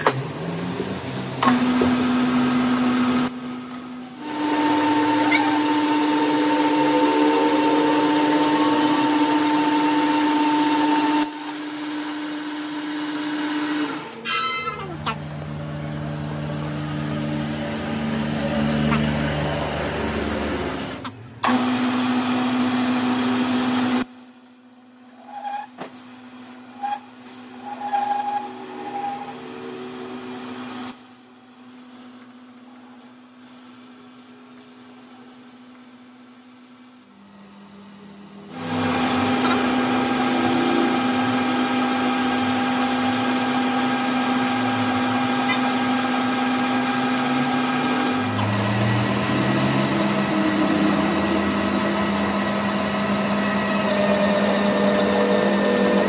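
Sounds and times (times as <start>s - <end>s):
metal lathe humming: 1.5s - 14.0s, 38.5s - 56.0s
thin high cutting whine: 2.6s - 10.3s.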